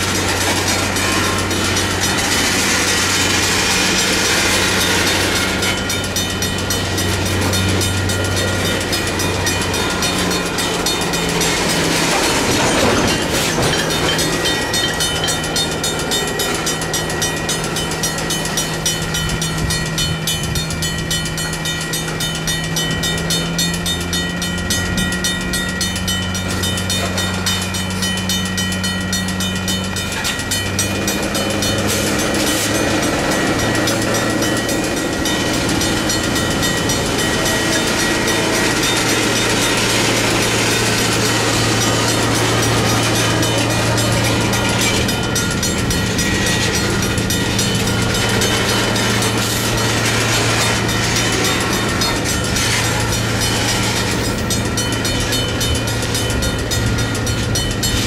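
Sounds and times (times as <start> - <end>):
diesel locomotive drone: 0.0 - 58.0
mechanical crossing bell ringing: 0.0 - 58.0.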